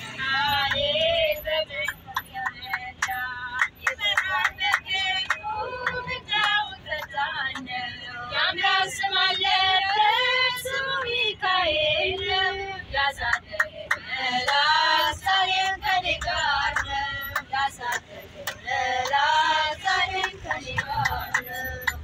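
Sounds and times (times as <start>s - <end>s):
percussion: 0.0s - 11.2s, 13.0s - 22.0s
voices singing a melody: 0.0s - 22.0s.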